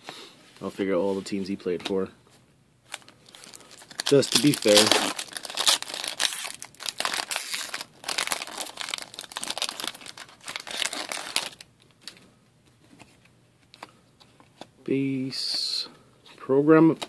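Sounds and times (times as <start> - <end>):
foil wrapper crinkling and tearing: 2.9 - 11.7.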